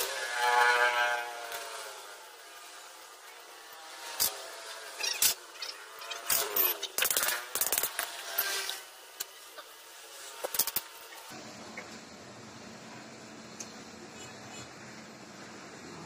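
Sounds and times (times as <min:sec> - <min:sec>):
metal scraping: 0:00.0 - 0:11.3
sharp metal clicks: 0:05.0 - 0:08.6.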